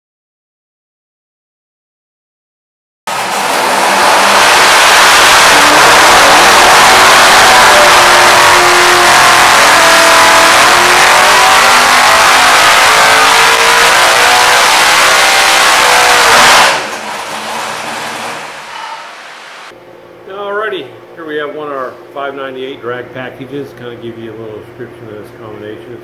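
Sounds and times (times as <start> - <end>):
racing engine revving on dyno: 3.1 - 19.8.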